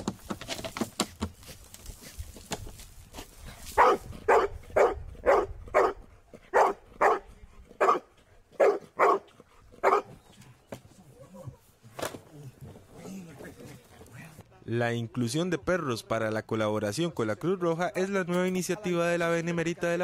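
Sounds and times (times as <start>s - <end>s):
dog barking sharply: 3.8s - 7.2s, 7.8s - 10.1s.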